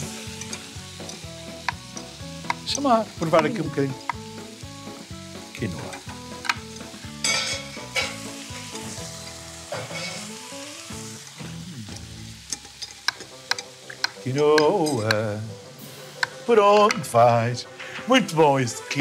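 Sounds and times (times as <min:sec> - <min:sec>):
food sizzling in frying pan: 0:00.0 - 0:19.0
utensil clicks: 0:12.5 - 0:15.2.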